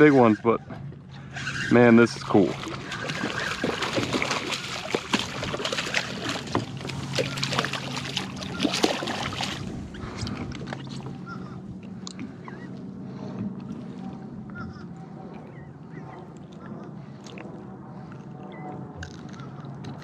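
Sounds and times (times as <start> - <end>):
fish splashing at water surface: 2.4 - 9.7.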